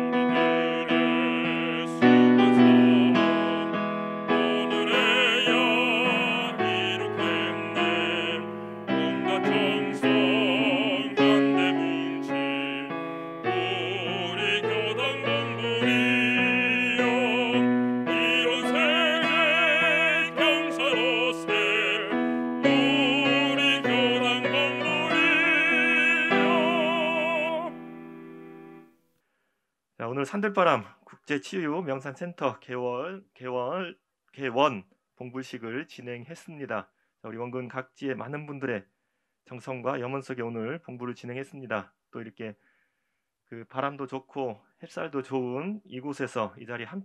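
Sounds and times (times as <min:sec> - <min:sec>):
person singing hymn with vibrato: 0:00.0 - 0:28.2
piano accompaniment: 0:00.0 - 0:28.9.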